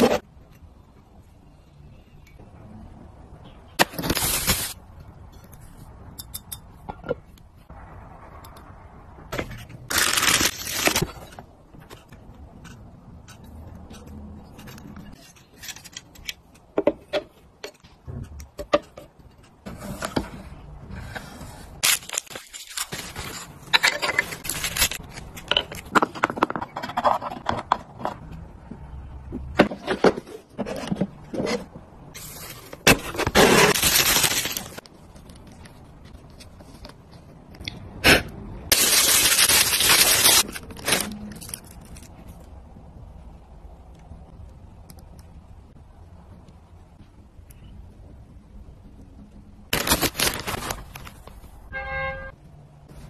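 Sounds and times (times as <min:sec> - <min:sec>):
packaging rustling: 0:09.9 - 0:11.3, 0:21.8 - 0:25.4, 0:32.2 - 0:35.5, 0:38.7 - 0:42.1, 0:49.8 - 0:51.6
objects tapping and scraping: 0:25.0 - 0:32.0.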